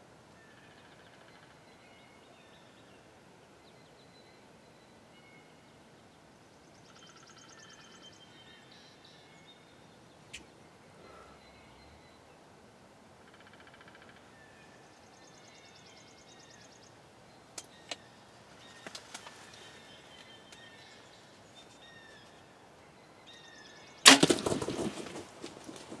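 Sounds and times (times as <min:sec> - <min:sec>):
faint bird calls and trills: 0:00.0 - 0:26.0
loud crack of bow shot: 0:24.1 - 0:24.8.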